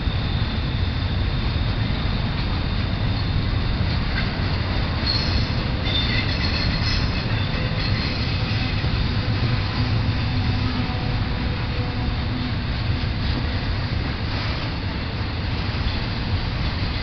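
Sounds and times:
steel wheels rumbling on rail: 0.0s - 17.0s
high-pitched wheel squeal: 5.0s - 11.1s.

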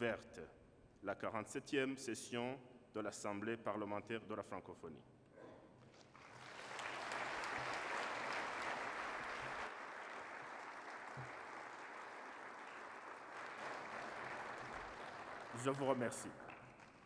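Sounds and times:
audience applauding: 6.0s - 17.0s.

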